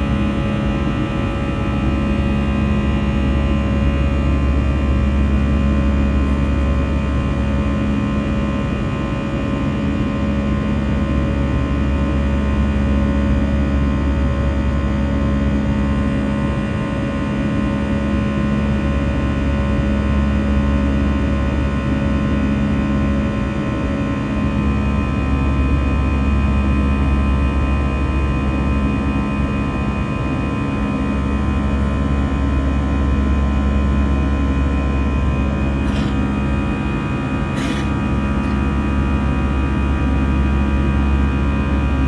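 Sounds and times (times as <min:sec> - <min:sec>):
jet engines rumbling in cabin: 0:00.0 - 0:42.0.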